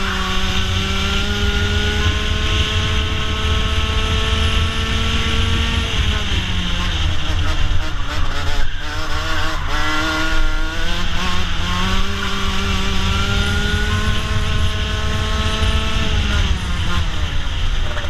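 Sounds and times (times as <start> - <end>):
kart two-stroke engine revving: 0.0 - 18.0
wind rumble on microphone: 0.0 - 18.0.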